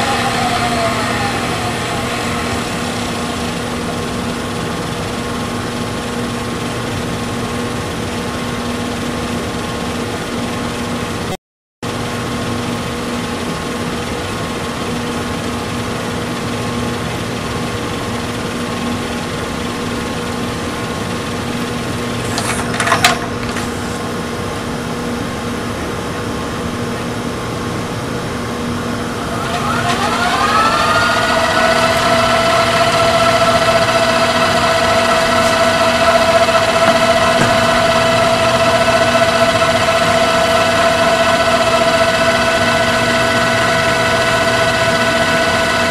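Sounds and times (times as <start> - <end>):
tape deck whirring: 0.0 - 7.7, 21.1 - 24.3, 28.6 - 45.9.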